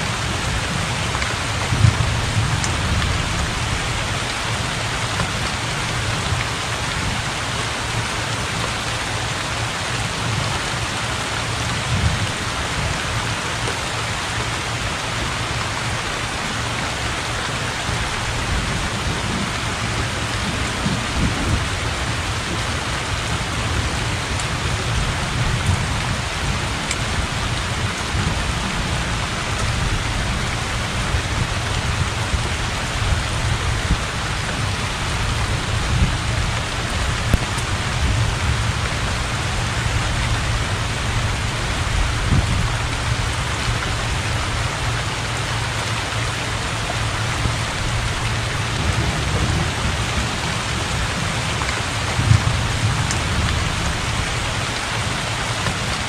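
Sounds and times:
heavy rain on standing water: 0:00.0 - 0:56.0
thunder rumbling: 0:00.2 - 0:05.3, 0:17.6 - 0:43.4, 0:46.7 - 0:56.0.

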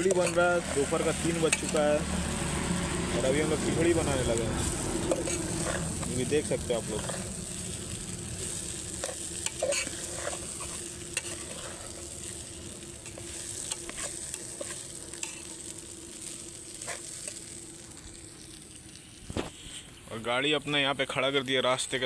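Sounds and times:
ladle scraping pot: 0:00.0 - 0:00.9, 0:05.0 - 0:06.0, 0:09.0 - 0:11.8
food sizzling in a pot: 0:00.0 - 0:22.0.

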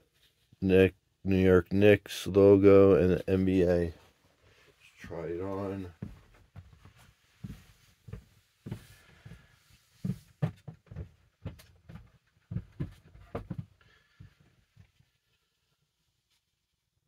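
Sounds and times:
footsteps thumping softly: 0:05.0 - 0:15.1.

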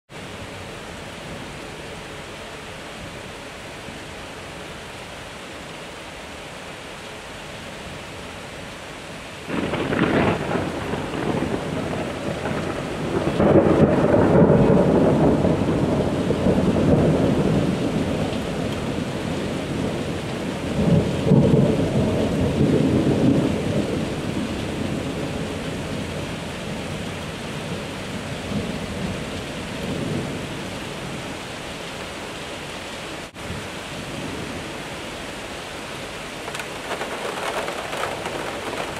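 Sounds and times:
heavy rain hissing: 0:08.3 - 0:38.9
thunder rumbling: 0:09.5 - 0:24.3, 0:36.4 - 0:38.9.

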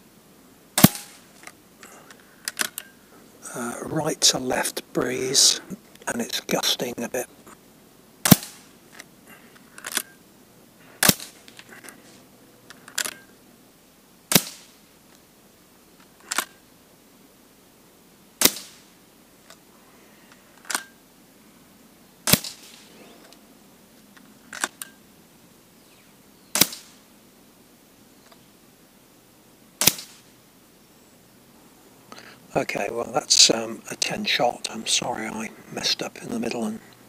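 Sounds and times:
air rifle shot crack: 0:00.8 - 0:01.4, 0:08.2 - 0:08.8, 0:11.0 - 0:11.5, 0:14.3 - 0:14.8, 0:18.4 - 0:19.0, 0:22.2 - 0:23.1, 0:26.5 - 0:27.1, 0:29.8 - 0:30.3.

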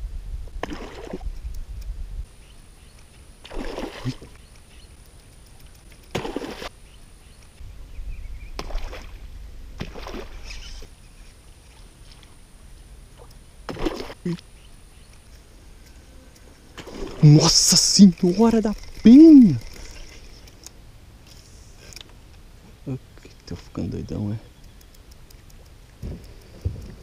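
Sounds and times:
water splashing: 0:00.6 - 0:01.3, 0:03.4 - 0:04.4, 0:06.1 - 0:06.7, 0:07.6 - 0:11.0, 0:13.1 - 0:14.4, 0:16.8 - 0:20.3
low rumble: 0:07.6 - 0:13.6.

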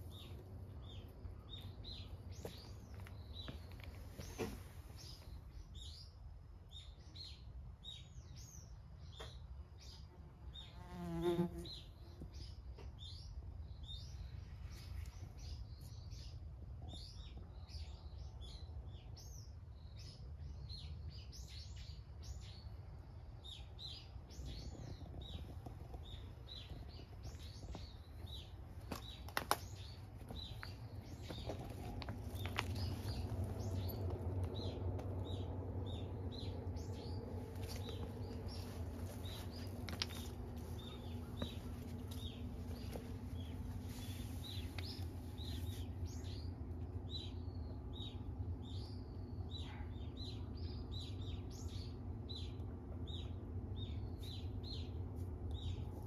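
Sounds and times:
small birds chirping: 0:00.0 - 0:56.0
steady low hum: 0:21.8 - 0:56.0.

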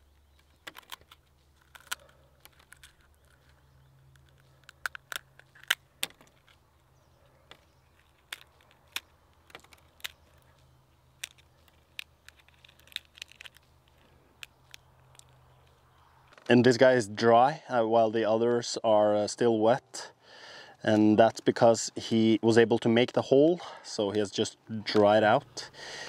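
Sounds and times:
egg shell cracking: 0:00.4 - 0:06.7, 0:07.9 - 0:15.6.

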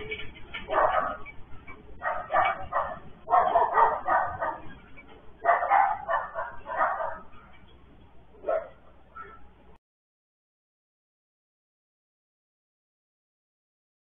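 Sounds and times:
dog barking: 0:00.6 - 0:01.3, 0:02.0 - 0:04.8, 0:05.4 - 0:07.5, 0:08.4 - 0:09.5.

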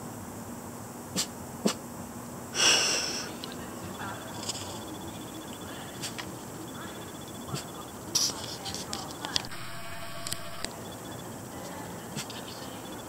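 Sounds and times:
sharp clicks: 0:08.2 - 0:10.7.

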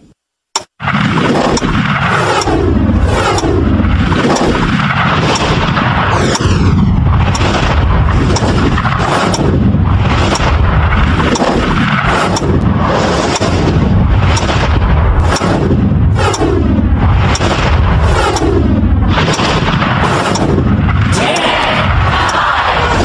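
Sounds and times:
distorted deep rumble: 0:00.8 - 0:23.0.

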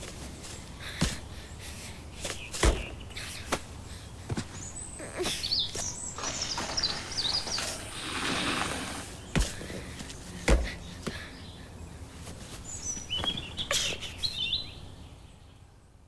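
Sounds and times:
bird chirps: 0:01.5 - 0:03.5, 0:04.5 - 0:09.6, 0:12.6 - 0:15.6.

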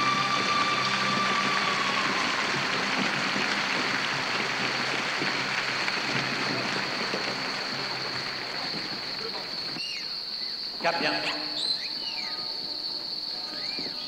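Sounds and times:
audience applause: 0:00.0 - 0:09.8.

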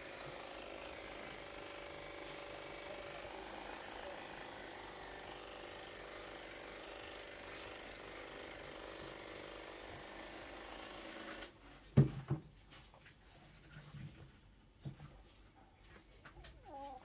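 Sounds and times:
small motor humming: 0:00.0 - 0:11.5.

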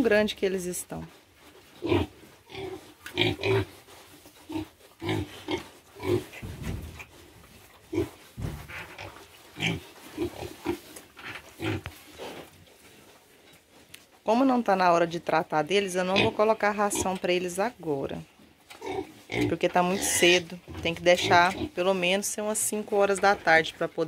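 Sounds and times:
pigs grunting: 0:04.5 - 0:07.1, 0:07.9 - 0:11.9.

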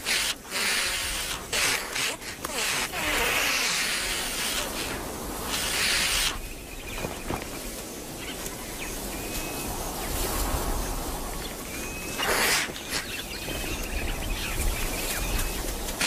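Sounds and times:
ostriches hissing: 0:00.0 - 0:06.5, 0:12.1 - 0:13.4.

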